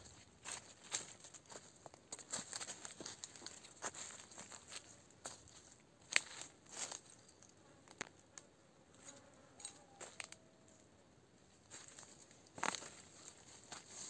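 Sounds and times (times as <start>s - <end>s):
footsteps through leaf litter: 0.2s - 7.1s, 11.7s - 14.0s.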